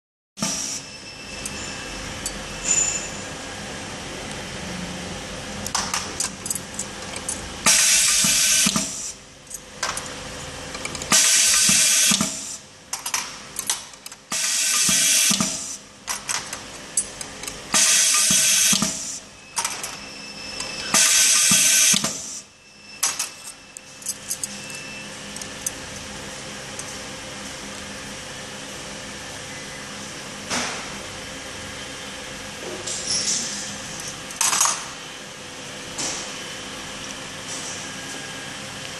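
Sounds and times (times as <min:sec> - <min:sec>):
loud pneumatic hissing bursts: 0:07.7 - 0:09.2, 0:11.1 - 0:12.6, 0:14.3 - 0:15.8, 0:17.7 - 0:19.3, 0:20.9 - 0:22.4.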